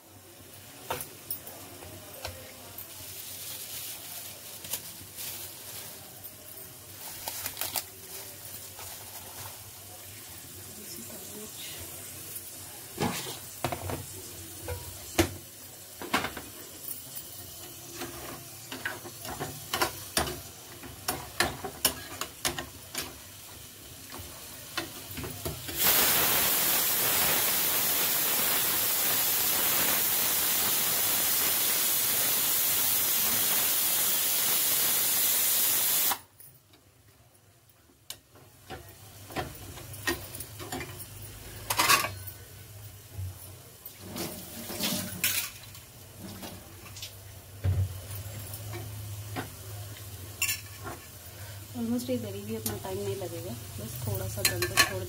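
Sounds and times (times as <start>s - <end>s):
metal utensils clinking on pots: 16.0s - 23.2s, 38.7s - 42.5s, 50.4s - 51.2s, 54.1s - 55.0s
loud steady hiss: 24.8s - 36.3s.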